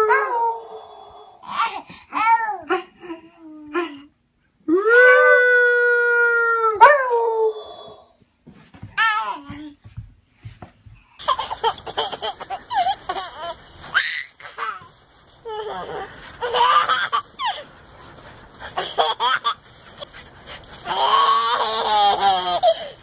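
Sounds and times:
baby laughing: 11.2s - 17.7s, 18.7s - 19.6s, 20.8s - 23.0s.

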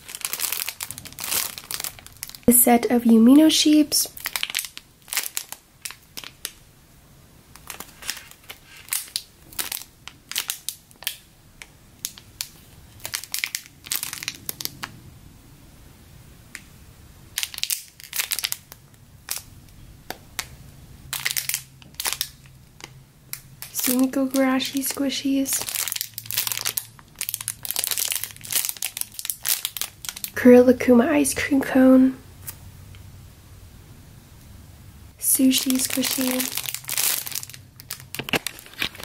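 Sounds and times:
plastic bags crinkling: 0.0s - 6.6s, 7.5s - 11.2s, 12.0s - 14.9s, 17.4s - 19.5s, 21.1s - 30.5s, 35.4s - 39.0s.

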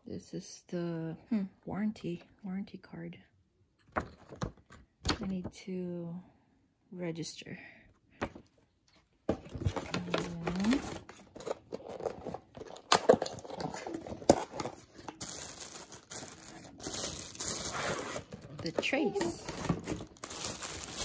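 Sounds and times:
plastic bags crinkling: 9.6s - 21.0s.

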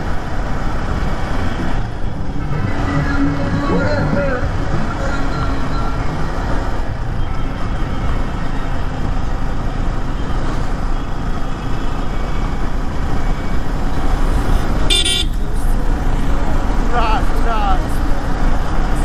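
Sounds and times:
vehicle horn toot: 14.9s - 15.4s.

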